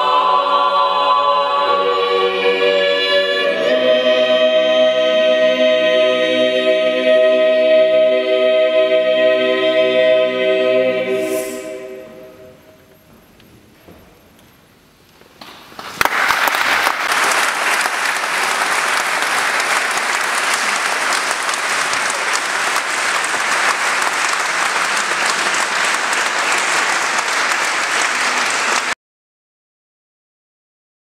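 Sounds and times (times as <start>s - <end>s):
audience applauding: 15.8s - 29.0s.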